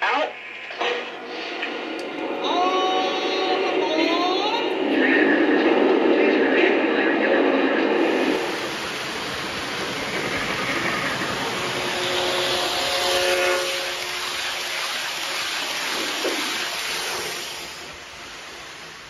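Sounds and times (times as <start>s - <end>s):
model train passing: 0.2s - 19.0s.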